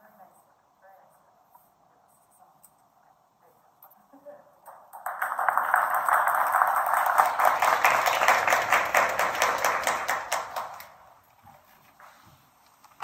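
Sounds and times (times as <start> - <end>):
applause: 4.7 - 11.0.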